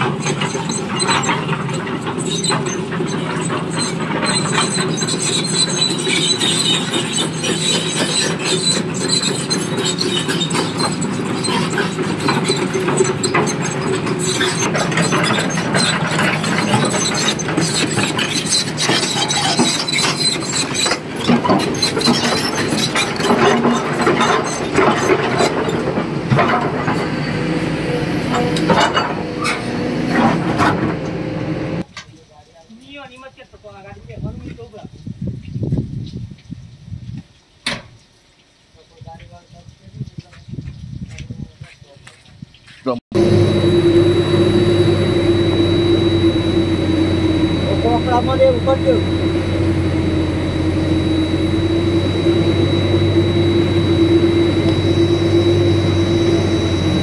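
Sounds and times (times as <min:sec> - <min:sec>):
metal clanks and squeals: 0:00.0 - 0:31.6, 0:43.1 - 0:57.0
excavator diesel engine and hydraulics: 0:00.0 - 0:31.9, 0:43.1 - 0:57.0.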